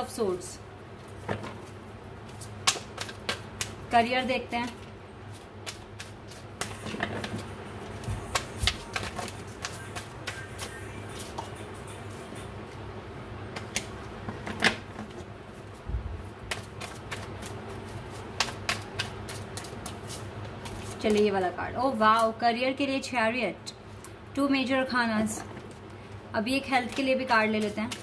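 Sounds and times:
steady low hum: 0:00.0 - 0:28.0
cards clicking while shuffled: 0:02.3 - 0:03.8, 0:04.7 - 0:11.6, 0:16.5 - 0:21.3, 0:26.7 - 0:28.0.

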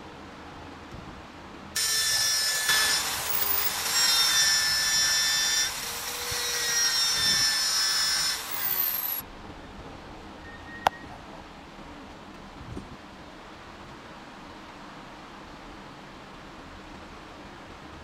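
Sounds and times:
power driver whining: 0:01.8 - 0:09.2.

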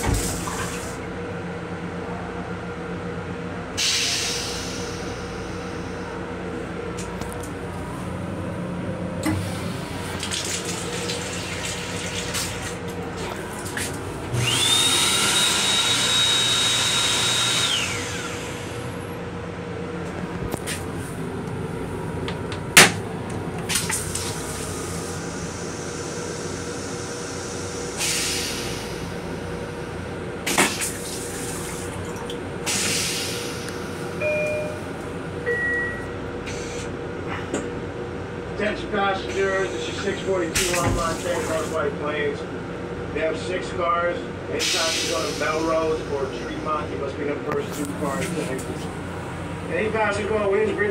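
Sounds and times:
moving train hum: 0:00.0 - 0:50.9
hand dryer blowing with high whine: 0:09.2 - 0:19.2, 0:22.2 - 0:29.6, 0:39.4 - 0:41.9, 0:44.6 - 0:47.0
toilet flush bang: 0:30.5 - 0:31.3.

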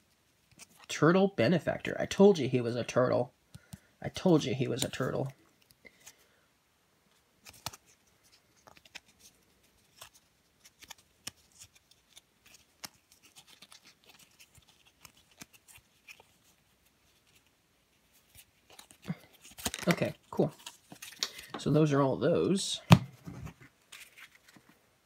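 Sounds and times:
cards being flipped through: 0:00.4 - 0:00.9, 0:03.5 - 0:06.2, 0:07.4 - 0:21.6, 0:22.9 - 0:24.8.

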